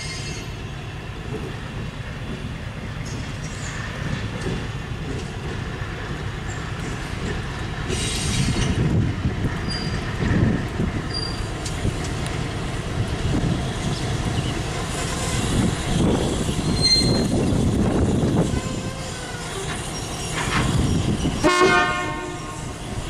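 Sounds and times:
diesel locomotive engine running: 0.0 - 23.0
hiss: 7.9 - 8.8
high wheel squeaks: 9.6 - 10.3, 11.0 - 11.8, 13.8 - 21.4.

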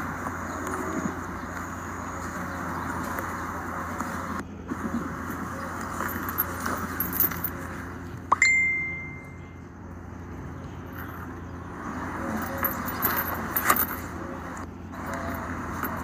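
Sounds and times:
bell-like ding with rising sweep: 8.3 - 9.5.

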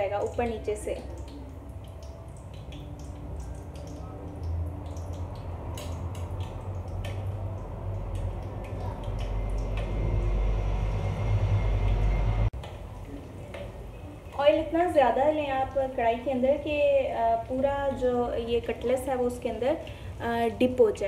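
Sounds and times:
cutlets deep-frying in oil: 0.0 - 21.0
low rumble: 6.6 - 12.6.

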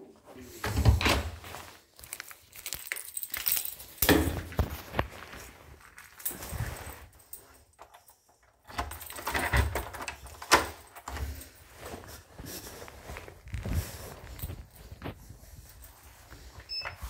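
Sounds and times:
keys jangling: 2.0 - 4.7, 5.8 - 12.3
door being handled: 8.7 - 11.4.

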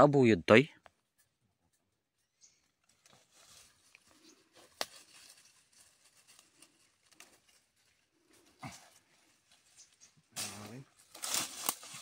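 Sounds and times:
dry leaves rustling: 2.9 - 12.0.

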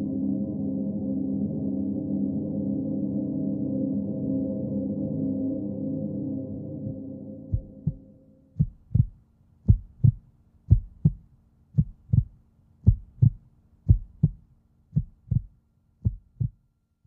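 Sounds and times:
faint hum: 0.0 - 16.8
heartbeat double thumps: 7.5 - 16.6.

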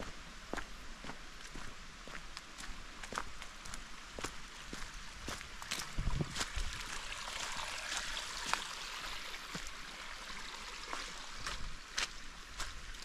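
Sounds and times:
footsteps on trail: 0.0 - 7.0, 10.9 - 13.0
flowing water: 3.1 - 13.0.

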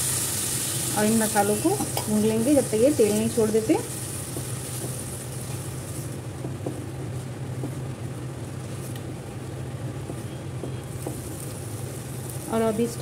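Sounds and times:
masala sizzling in a pan: 0.0 - 13.0
steady low hum: 0.0 - 13.0.

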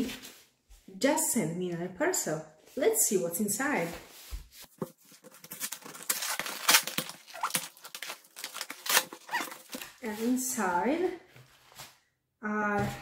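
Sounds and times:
cardboard ripping: 4.7 - 10.0.

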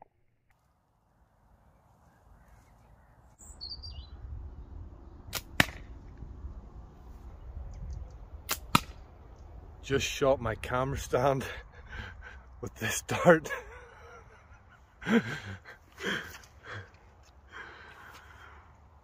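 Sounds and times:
bird chirping: 1.7 - 5.2
wind rumble on microphone: 3.8 - 11.1
slingshot sharp cracks: 5.3 - 6.0, 8.4 - 9.1.

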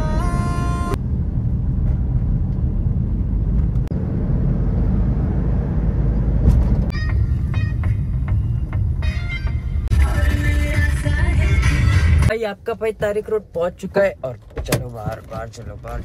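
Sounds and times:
car road and engine rumble: 0.0 - 16.0
music: 6.9 - 12.3.

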